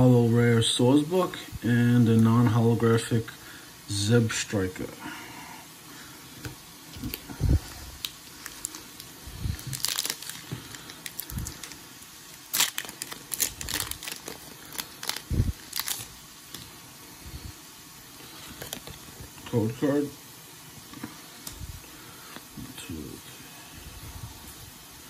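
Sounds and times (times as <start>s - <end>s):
wrapper crinkling and tearing: 6.9s - 7.3s, 8.0s - 16.7s, 18.2s - 19.2s.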